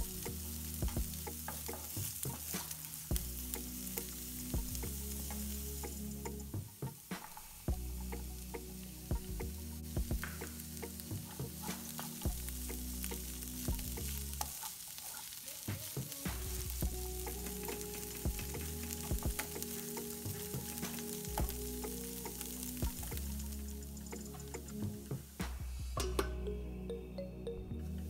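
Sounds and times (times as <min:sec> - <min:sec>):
vegetables sizzling in a pan: 0:00.0 - 0:25.7.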